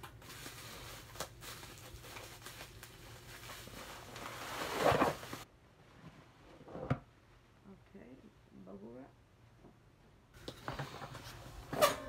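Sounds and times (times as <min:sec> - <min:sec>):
bubble wrap rustling and crinkling: 0:00.0 - 0:05.5.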